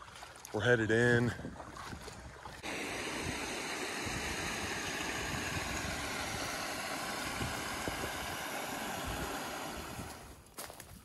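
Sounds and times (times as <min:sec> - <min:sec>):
low water rumble: 0:00.0 - 0:10.4
water rushing over waterfall: 0:02.6 - 0:10.3.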